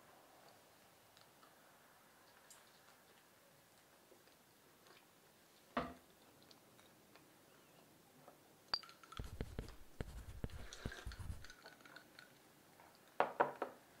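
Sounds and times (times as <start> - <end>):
bread handled on ceramic plate: 9.2 - 11.5.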